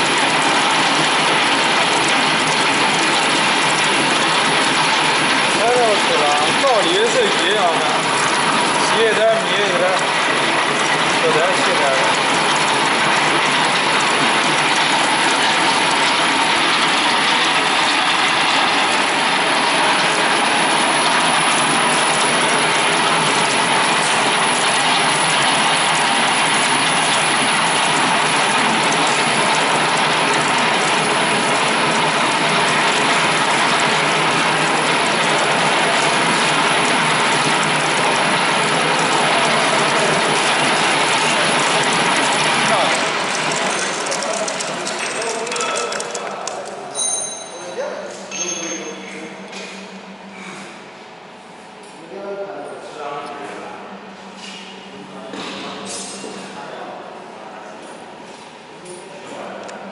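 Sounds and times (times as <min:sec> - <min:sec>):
rope twisting machine clattering: 0:00.0 - 0:47.6.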